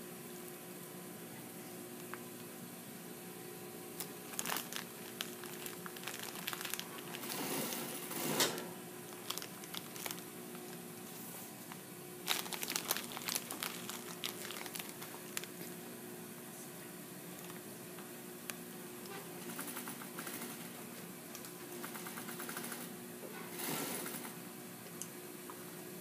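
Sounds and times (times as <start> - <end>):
fabric rustling and crinkling: 4.0 - 7.6, 9.1 - 11.6, 12.2 - 15.6
sewing machine motor hum: 7.0 - 8.6, 21.8 - 24.4.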